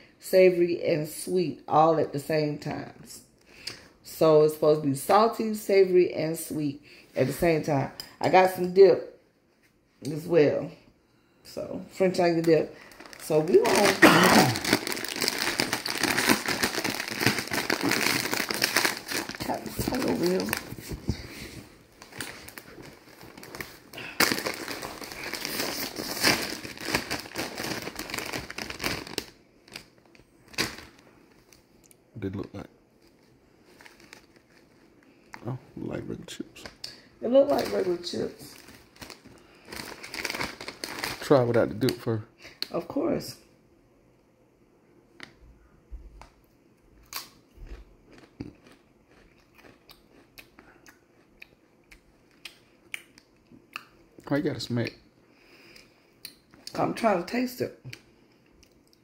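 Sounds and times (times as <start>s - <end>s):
chip bag crinkling: 12.4s - 31.6s, 33.0s - 35.4s, 36.6s - 42.1s, 48.1s - 50.2s.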